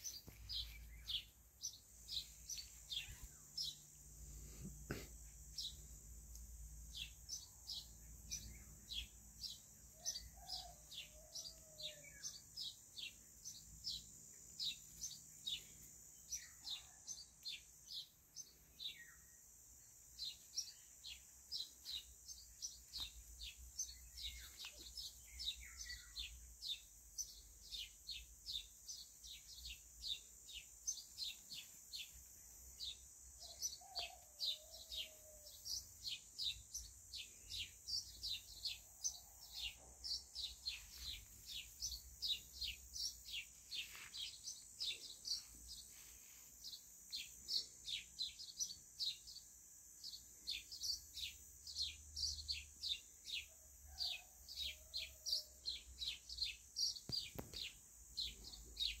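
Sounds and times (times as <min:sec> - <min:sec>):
faint high hiss: 0:00.0 - 0:09.6, 0:17.4 - 0:52.0
small bird chirping: 0:00.0 - 0:59.0.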